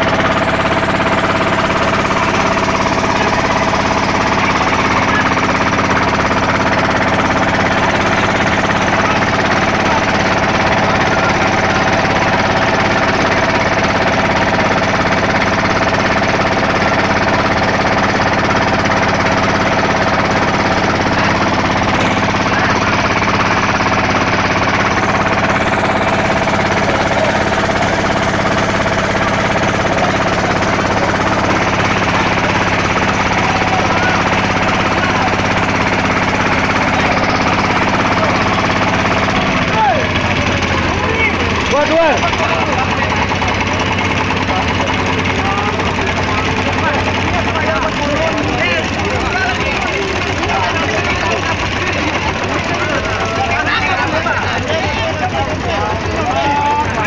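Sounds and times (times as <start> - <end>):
boat diesel engines running: 0.0 - 57.0.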